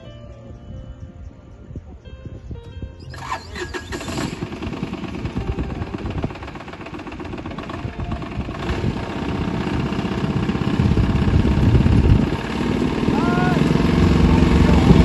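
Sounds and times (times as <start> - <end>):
quad bike engine rumbling: 3.0 - 15.0.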